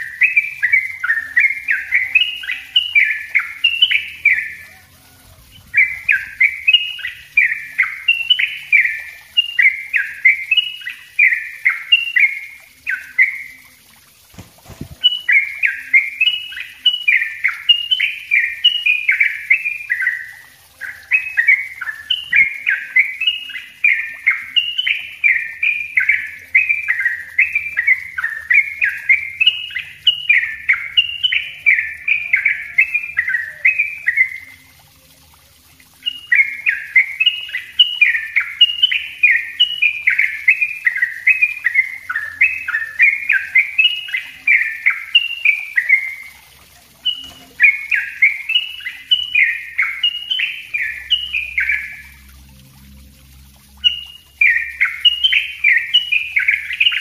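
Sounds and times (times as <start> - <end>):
bird singing bubbling notes: 0.0 - 57.0.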